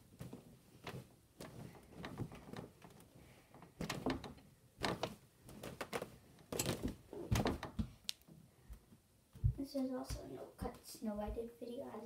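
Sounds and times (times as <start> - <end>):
knocks and clatters: 0.2 - 8.0.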